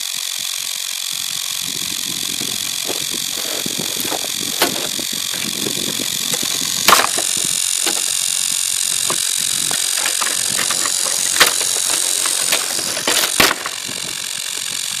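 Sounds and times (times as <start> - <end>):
electric motor whine: 0.0 - 15.0
sharp clicks or knocks: 6.3 - 8.2, 9.0 - 13.9.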